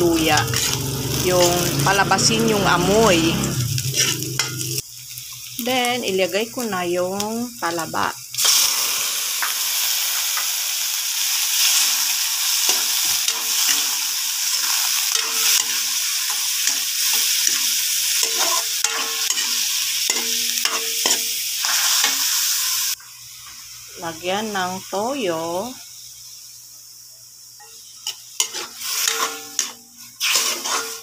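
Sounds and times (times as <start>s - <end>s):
metal spoon scraping pan: 0.0s - 4.8s, 15.1s - 22.2s, 27.6s - 31.0s
oysters sizzling in hot oil: 0.0s - 31.0s.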